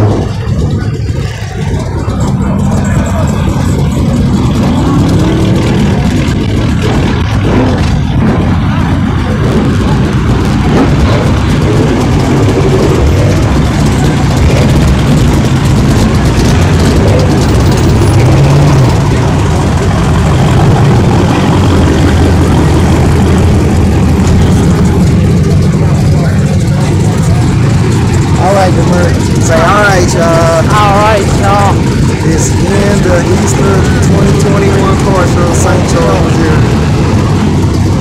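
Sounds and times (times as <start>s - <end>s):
car engine idling: 0.0s - 38.0s.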